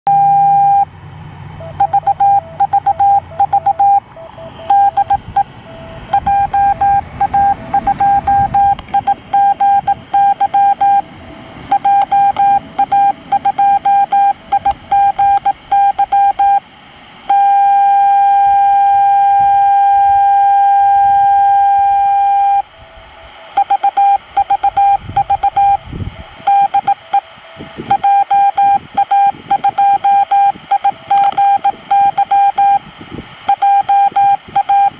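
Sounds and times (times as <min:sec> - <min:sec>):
morse code tone: 0:00.1 - 0:00.9, 0:01.6 - 0:11.1, 0:11.7 - 0:16.6, 0:17.2 - 0:32.8, 0:33.4 - 0:34.9
steady unbroken tone: 0:01.6 - 0:16.6.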